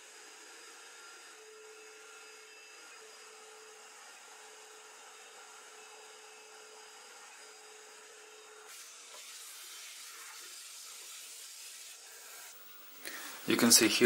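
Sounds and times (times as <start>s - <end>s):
router spindle whine milling metal: 0.0s - 14.0s
shop vacuum hose sucking chips: 8.6s - 14.0s.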